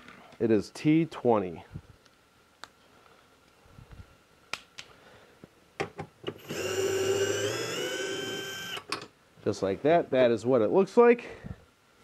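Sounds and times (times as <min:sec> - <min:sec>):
cordless screwdriver whining: 0:06.3 - 0:08.9.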